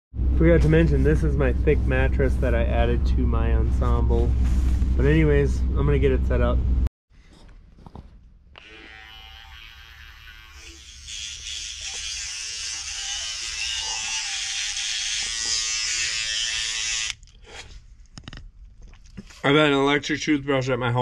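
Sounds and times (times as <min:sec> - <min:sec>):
electric toothbrush buzzing: 0:08.6 - 0:17.2.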